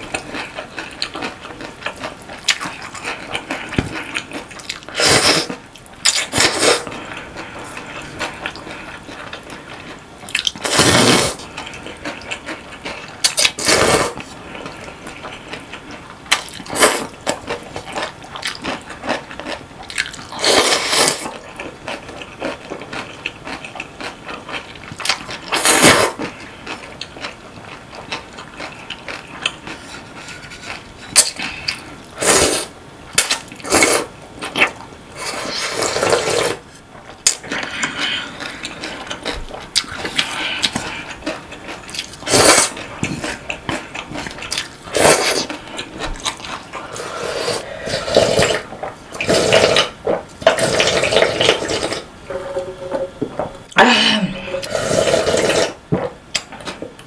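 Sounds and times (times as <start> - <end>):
chewing with wet clicks: 0.0 - 4.9, 6.9 - 10.6, 14.6 - 20.3, 21.3 - 25.6, 26.2 - 29.9, 37.0 - 44.8, 45.4 - 46.8
noodle slurps: 4.9 - 6.9, 10.6 - 11.4, 13.3 - 14.2, 33.6 - 36.6, 46.8 - 52.1, 54.4 - 55.8.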